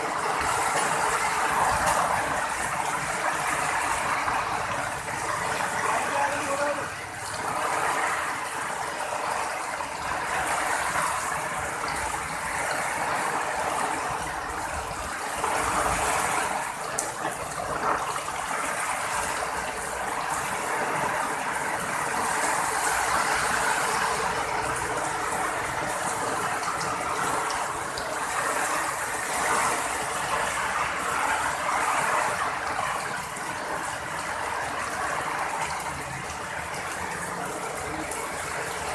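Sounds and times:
heavy rain on a paved road: 0.0s - 38.9s.

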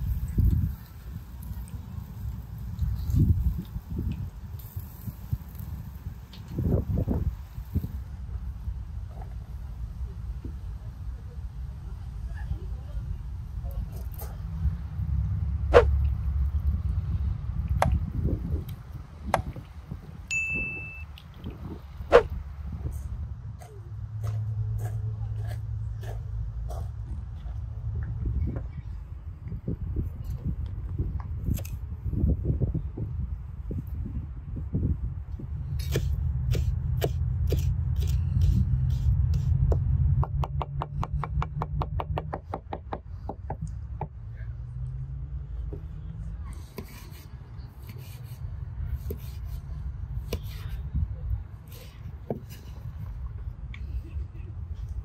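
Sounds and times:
low steady rumble: 0.0s - 47.7s
bell-like ding: 20.3s - 21.1s
knife chopping on wooden board: 35.8s - 38.2s.

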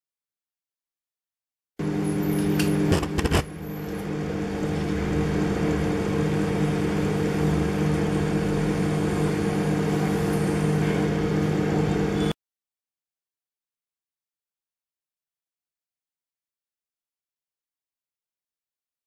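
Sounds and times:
microwave oven humming: 1.8s - 12.4s.

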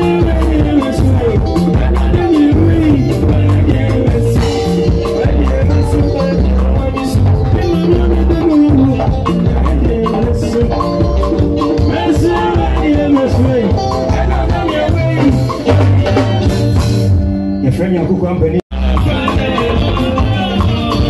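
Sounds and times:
person singing: 0.0s - 17.0s, 18.7s - 21.0s
drum kit: 0.0s - 17.6s, 18.7s - 21.0s
deep bass line: 0.0s - 21.0s.

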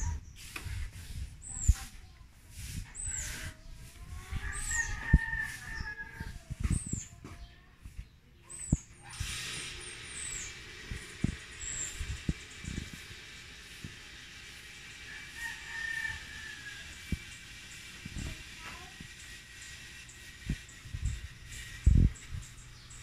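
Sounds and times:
small bird chirping: 0.0s - 13.1s
rooster crowing: 4.4s - 6.4s, 15.0s - 17.1s
hiss: 8.6s - 23.0s.

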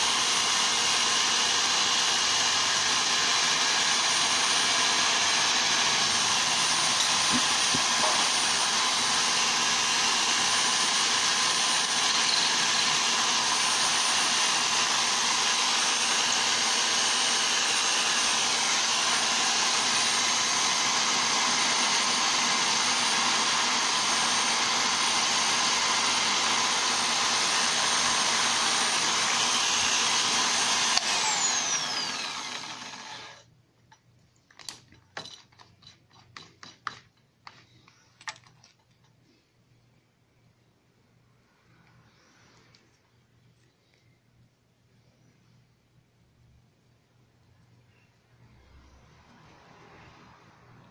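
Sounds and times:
electric drill spinning: 0.0s - 33.5s.

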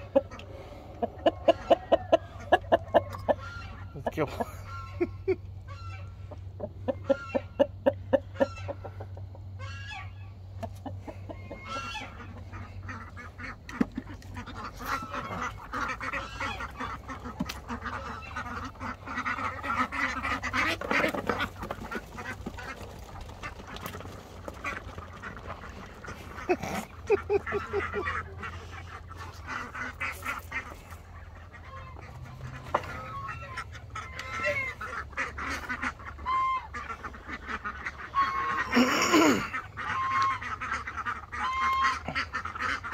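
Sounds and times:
ducks quacking: 0.0s - 42.9s
geese honking: 0.0s - 42.9s.

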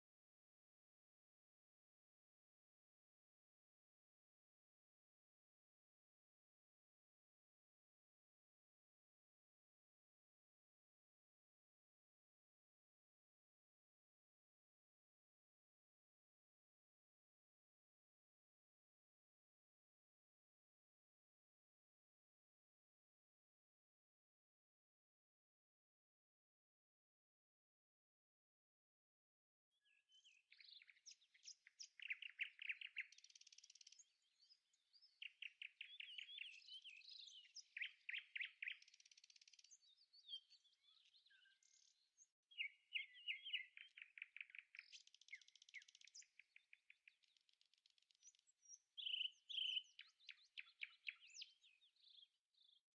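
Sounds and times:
songbird chirping and trilling: 29.8s - 53.0s.

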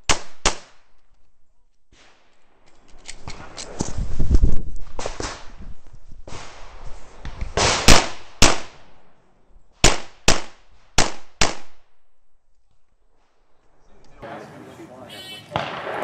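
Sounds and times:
pistol shots echoing: 15.5s - 16.0s.

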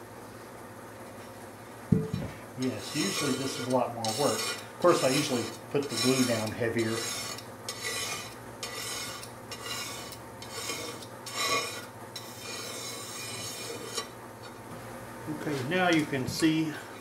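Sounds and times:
razor blade scraping glass: 2.7s - 14.1s.

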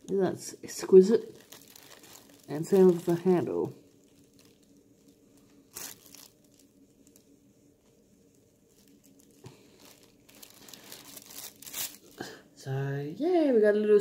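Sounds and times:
paper packing rustling: 0.0s - 7.3s, 8.7s - 12.2s
faint low hum: 0.0s - 14.0s.

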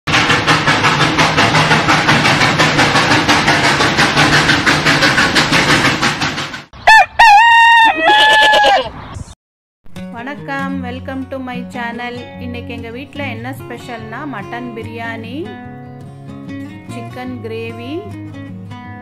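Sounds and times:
steam train chuffing: 0.1s - 6.8s
rooster crowing: 6.8s - 8.9s.

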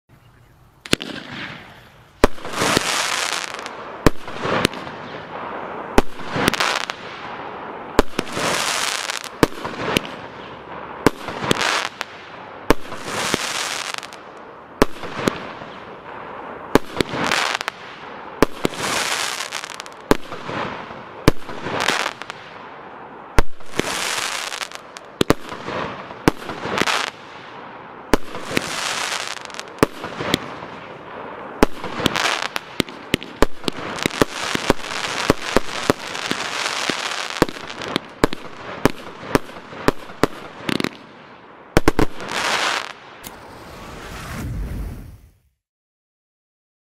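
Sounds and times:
firework shots popping: 0.8s - 7.4s, 8.0s - 14.2s, 14.8s - 22.6s, 23.3s - 27.5s, 28.1s - 41.1s, 41.7s - 45.2s
hissing crackle of burning stars: 14.1s - 40.7s, 41.8s - 45.6s.

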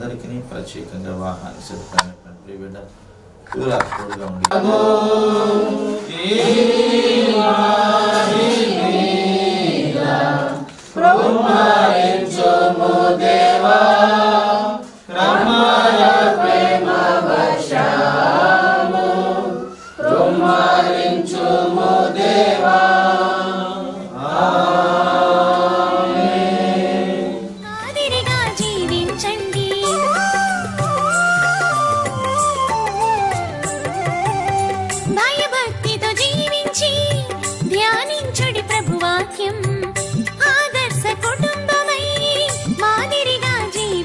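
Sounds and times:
group singing a hymn: 4.5s - 27.8s.

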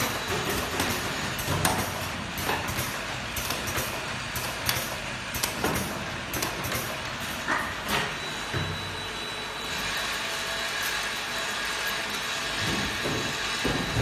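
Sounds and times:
capping machine humming and hissing: 0.0s - 14.0s
sharp mechanical click: 1.6s - 7.0s.

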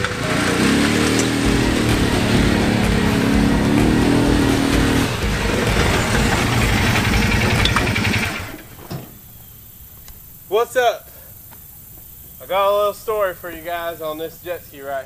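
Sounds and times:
utv engine running: 0.0s - 9.9s.

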